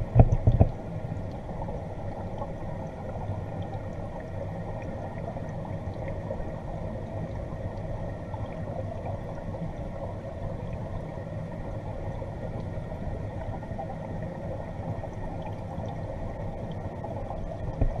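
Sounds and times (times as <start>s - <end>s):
muffled underwater hum and gurgle: 0.0s - 18.0s.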